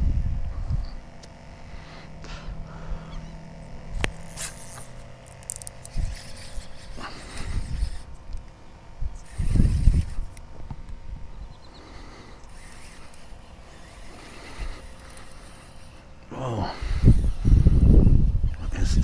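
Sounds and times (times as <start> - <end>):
wind gusting on microphone: 0.0 - 1.2, 5.9 - 11.6, 16.5 - 19.0
faint machine hum: 0.0 - 19.0
sharp clicks: 12.4 - 15.6.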